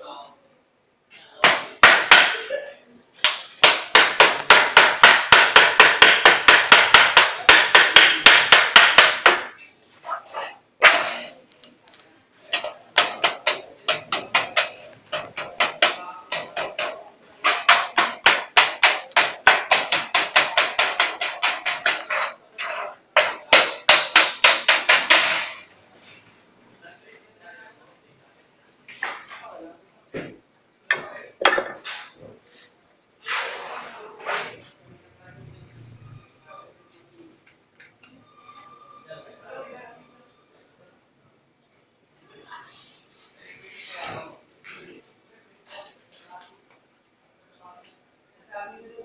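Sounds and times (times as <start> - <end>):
wooden mallet beating steel sheet: 1.4 - 2.5, 3.2 - 9.6, 12.5 - 25.7.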